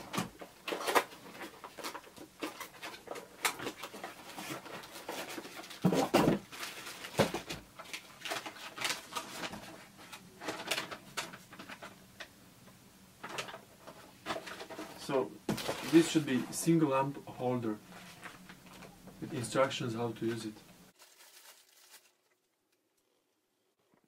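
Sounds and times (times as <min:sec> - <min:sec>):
cardboard and paper rustling: 0:00.0 - 0:12.0, 0:13.2 - 0:16.8, 0:17.8 - 0:19.5, 0:21.0 - 0:22.3.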